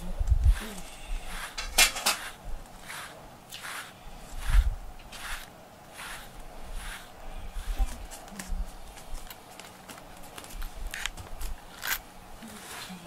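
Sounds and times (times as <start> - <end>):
brush stroking cat fur: 0.4 - 13.0.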